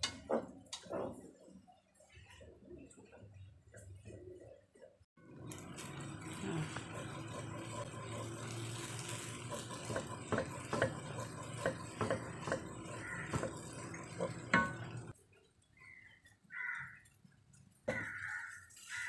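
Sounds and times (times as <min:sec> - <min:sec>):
noodles frying hiss: 0:05.2 - 0:15.2, 0:16.6 - 0:19.0
spatula scraping noodles: 0:06.2 - 0:14.9
spatula knocking against pan: 0:09.8 - 0:15.1.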